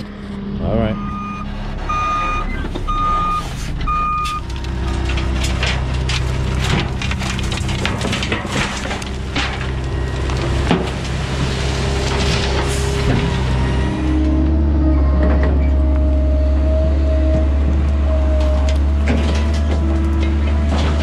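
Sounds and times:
diesel engine running: 0:00.0 - 0:21.0
truck reverse alarm beeping: 0:00.8 - 0:04.8, 0:13.3 - 0:17.6
dirt and rock clattering: 0:01.9 - 0:14.6, 0:15.2 - 0:21.0.

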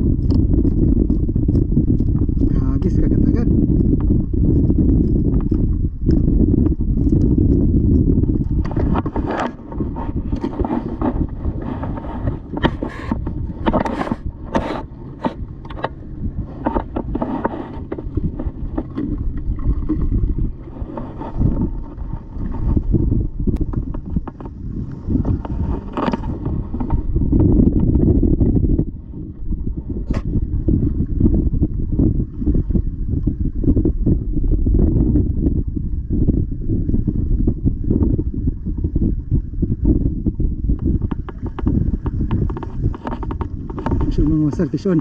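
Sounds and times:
wind buffeting microphone: 0:00.0 - 0:45.0
sharp clicks and knocks: 0:11.8 - 0:20.0, 0:25.2 - 0:27.0, 0:41.0 - 0:44.3.

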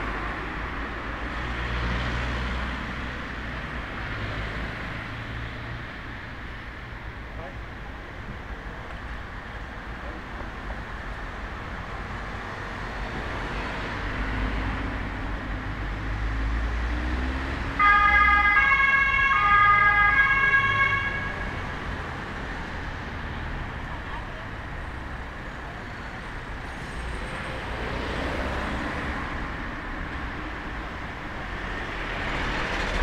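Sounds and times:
rumble of passing vehicles: 0:00.0 - 0:33.0
two-tone siren: 0:17.8 - 0:21.6.

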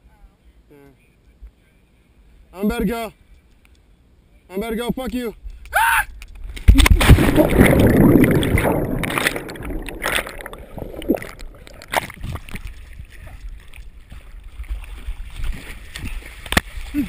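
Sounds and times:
water splashes and knocks: 0:06.3 - 0:17.0
rush of plunge into water: 0:06.7 - 0:12.7
underwater gurgling and sloshing: 0:07.0 - 0:16.9.

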